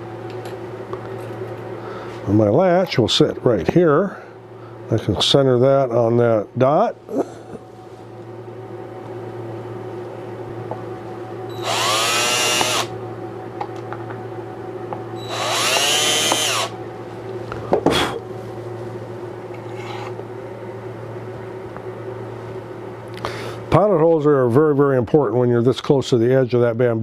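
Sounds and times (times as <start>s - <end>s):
steady low hum: 0.0s - 27.0s
cordless drill drilling: 11.5s - 12.9s, 15.2s - 16.7s.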